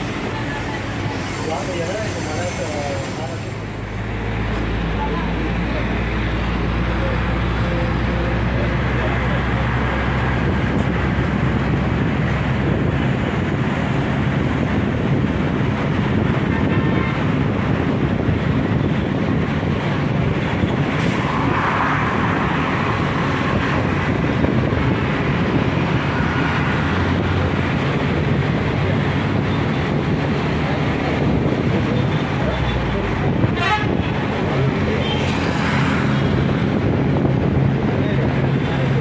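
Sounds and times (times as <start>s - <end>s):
road traffic noise: 0.0s - 39.0s
wind on microphone: 10.1s - 34.7s, 35.8s - 39.0s.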